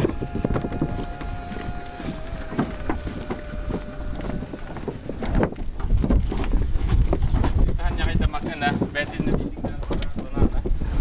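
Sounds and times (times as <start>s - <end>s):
steady high hum: 0.0s - 5.3s
footsteps on floating dock: 0.0s - 11.0s
wind on microphone: 0.0s - 11.0s.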